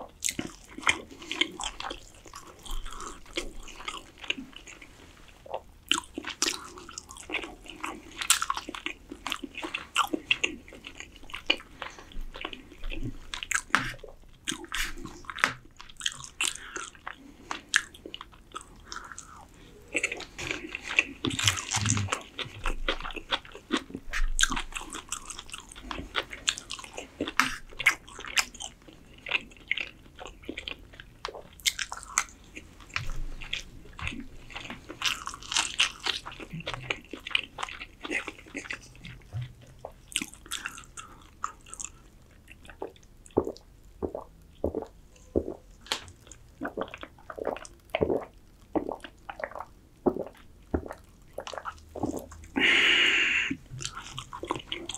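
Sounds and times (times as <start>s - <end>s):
crunching raw vegetable: 5.5s - 52.8s
wet mouth clicks: 13.6s - 15.6s, 21.3s - 22.6s.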